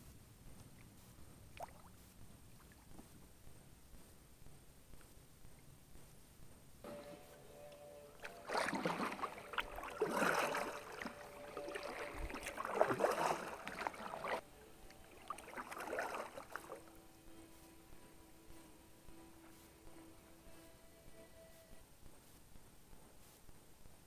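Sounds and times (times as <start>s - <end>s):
paddle splashing in water: 8.2s - 14.4s, 15.0s - 17.0s.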